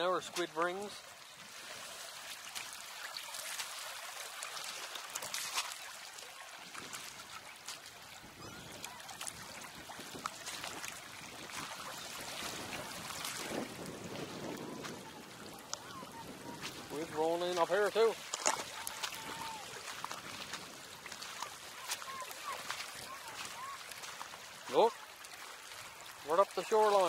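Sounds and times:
small waves on stony shore: 0.0s - 27.0s.

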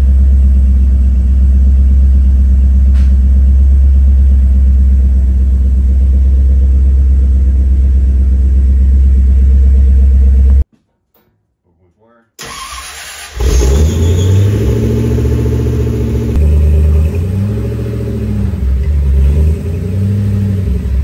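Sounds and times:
truck engine idling: 0.0s - 10.6s.

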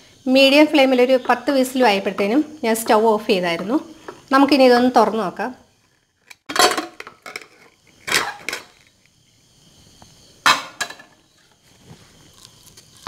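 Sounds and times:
metal lid knocking and scraping: 6.5s - 8.8s, 10.4s - 11.2s.

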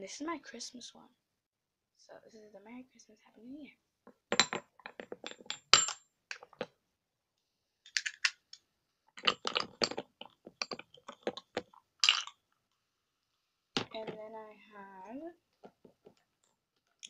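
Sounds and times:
small objects clinking on desk: 4.3s - 6.7s, 7.9s - 8.6s, 9.2s - 12.4s, 13.8s - 14.2s.

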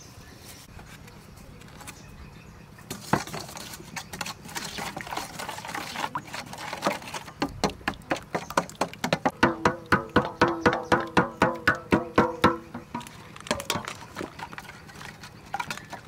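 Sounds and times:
spoon beating eggs in metal bowl: 3.2s - 16.0s.

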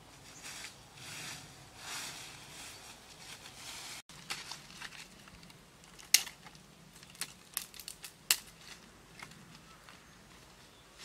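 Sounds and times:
dry leaves rustling: 0.0s - 11.0s
twigs crackling and snapping: 4.1s - 10.0s.

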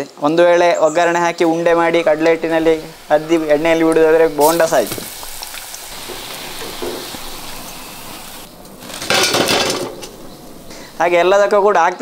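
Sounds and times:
hot oil sizzling: 0.6s - 12.0s
metallic clatter in strainer: 8.8s - 10.2s.

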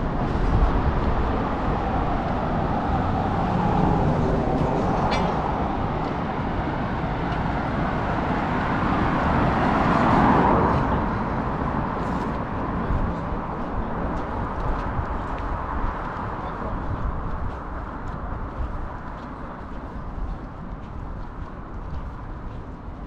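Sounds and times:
vehicle passing loudly: 0.0s - 13.6s
cars going by: 0.0s - 23.0s.

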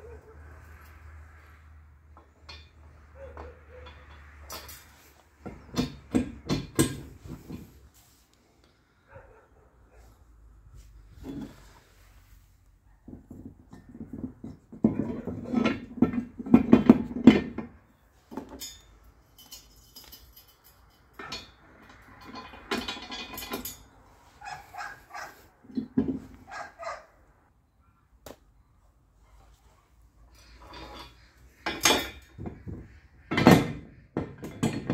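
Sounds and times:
metal knocks and rattles: 2.1s - 7.9s, 13.0s - 25.0s, 25.6s - 26.7s, 30.4s - 34.9s.

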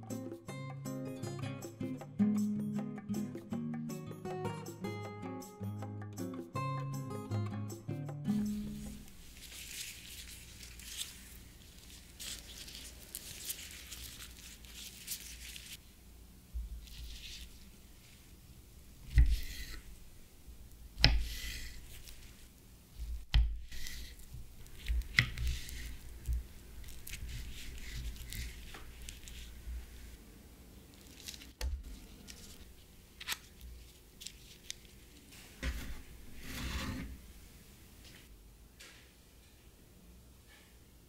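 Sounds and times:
knife slicing banana: 19.0s - 19.8s, 21.0s - 22.1s, 23.0s - 29.3s.

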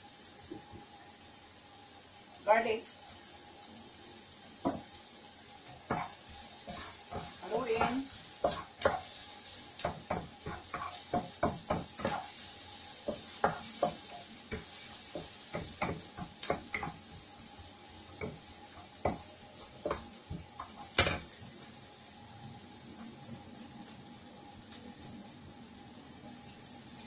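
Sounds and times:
faint sizzle: 0.0s - 27.0s
wooden spatula scraping a wok: 5.7s - 17.2s.

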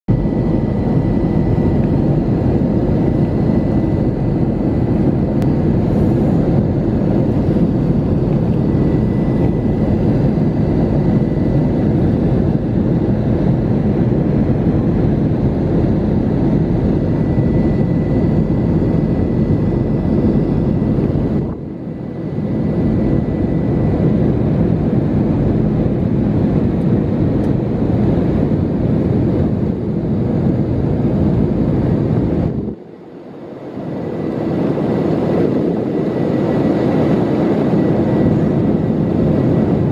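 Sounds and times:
roar of engines and airflow: 0.1s - 39.9s.

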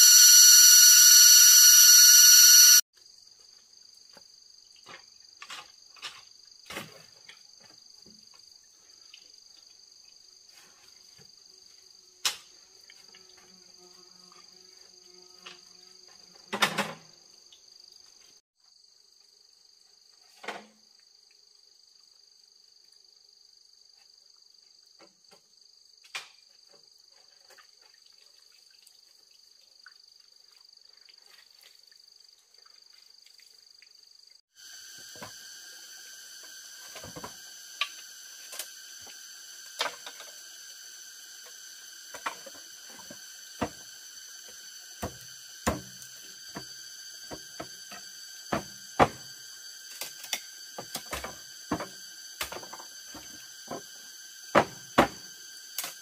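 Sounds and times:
loud insect chorus: 0.0s - 2.8s, 31.9s - 56.0s
insects chirring: 0.0s - 3.2s, 29.4s - 56.0s.

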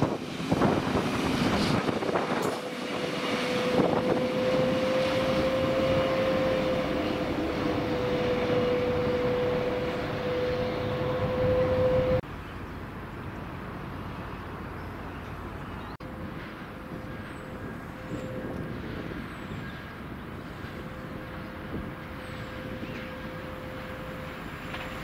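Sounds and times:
freight train wagons clattering: 0.0s - 9.1s, 14.5s - 25.0s.

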